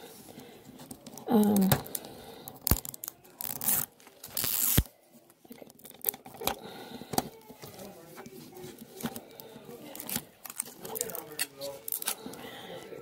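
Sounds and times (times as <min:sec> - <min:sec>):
plastic label tearing and crinkling: 0:01.1 - 0:04.9, 0:09.9 - 0:12.2.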